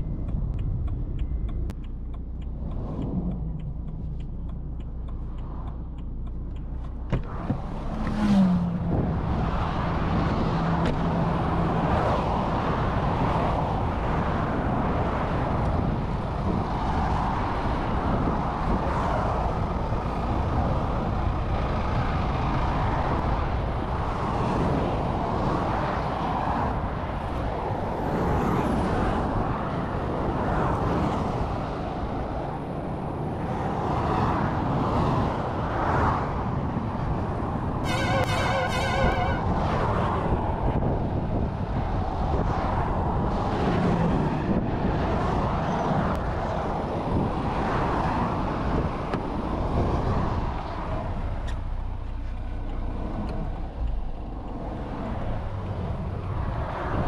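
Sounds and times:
heavy motorway traffic rushing past: 0:00.0 - 0:57.0
steady engine tone: 0:37.7 - 0:39.8.

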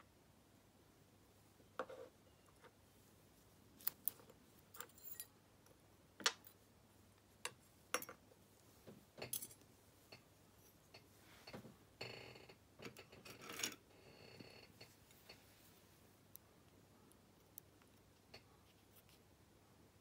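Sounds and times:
metallic clicks of padlock parts: 0:03.8 - 0:05.3.

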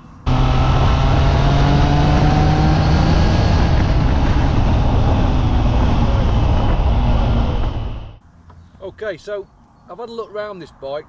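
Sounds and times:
wind rushing over microphone: 0:00.0 - 0:08.2
motorcycle engine cruising: 0:00.0 - 0:08.7.

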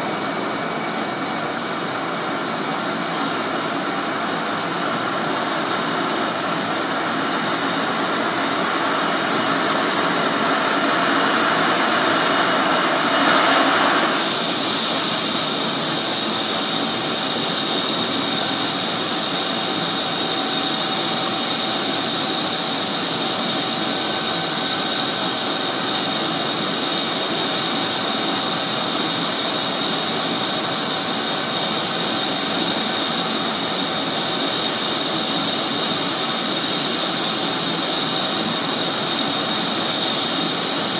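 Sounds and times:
helicopter turbine whine: 0:00.0 - 0:40.9
rushing rotor noise: 0:01.6 - 0:29.4.

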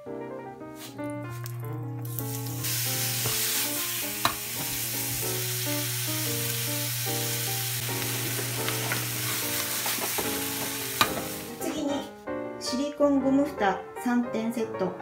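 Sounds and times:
meat and onion sizzling in a pan: 0:02.0 - 0:11.9
tongs knocking on a pan: 0:09.8 - 0:11.4.

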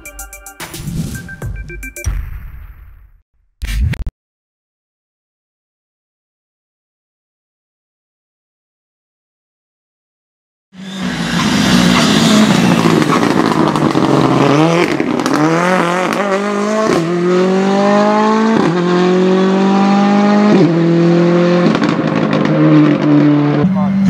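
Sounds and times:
rally car engine accelerating: 0:10.8 - 0:24.0.

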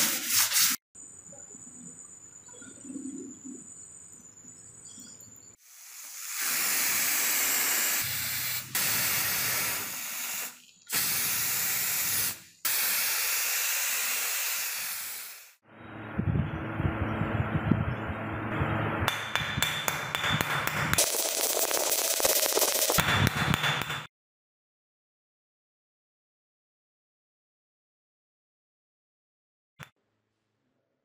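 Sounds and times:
aerosol spray can hissing: 0:05.6 - 0:15.6, 0:21.0 - 0:23.1.

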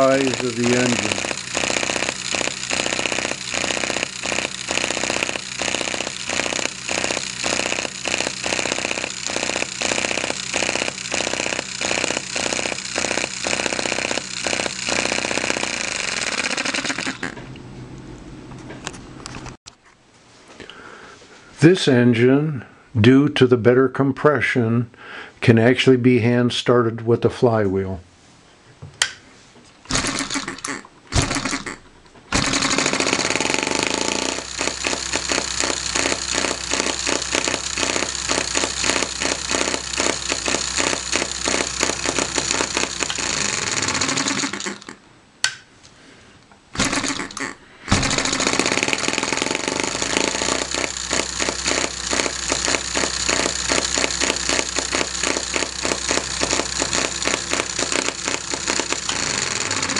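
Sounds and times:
small engine popping: 0:00.0 - 0:17.4, 0:29.9 - 0:45.0, 0:46.8 - 0:59.9.

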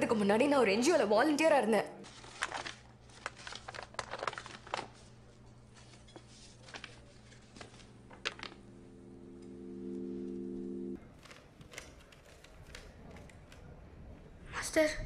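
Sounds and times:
low steady hum: 0:04.4 - 0:11.0.

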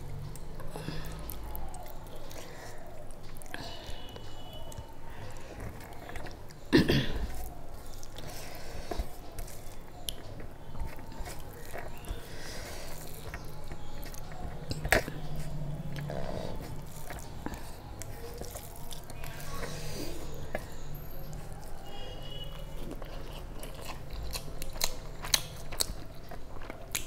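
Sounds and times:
chewing and wet mouth noises: 0:00.0 - 0:27.0.

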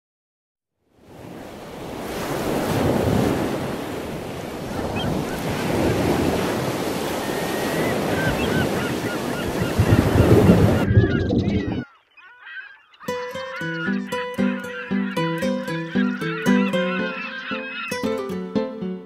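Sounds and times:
sea water rushing: 0:01.1 - 0:10.9, 0:13.2 - 0:19.0
wind rushing: 0:09.5 - 0:11.8.

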